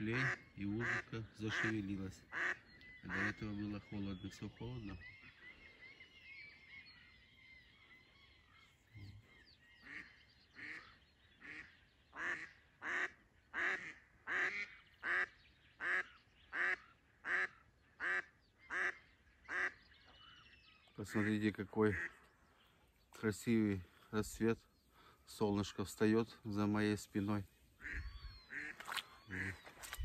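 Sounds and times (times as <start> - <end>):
duck quacking loudly: 0.0 - 3.4, 12.2 - 19.8, 27.8 - 29.7
faint bird calls: 0.0 - 30.0.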